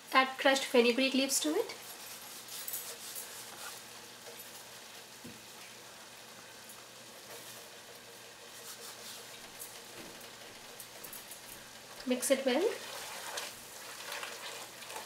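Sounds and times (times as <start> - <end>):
gravy simmering with faint sizzle: 0.0 - 15.0.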